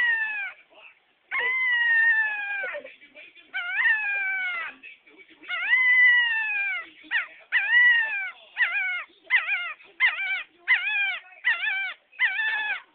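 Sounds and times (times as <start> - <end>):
puppy howling: 0.0 - 0.6, 1.3 - 2.9, 3.6 - 4.8, 5.5 - 12.9.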